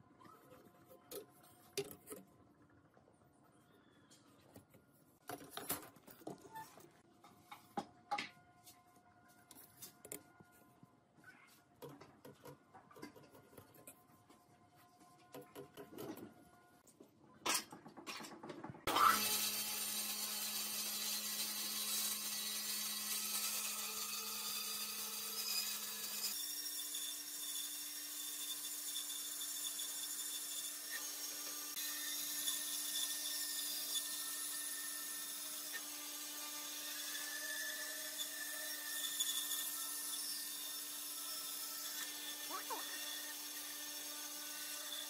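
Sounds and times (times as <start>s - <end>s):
bandsaw cutting wood: 18.9s - 45.0s.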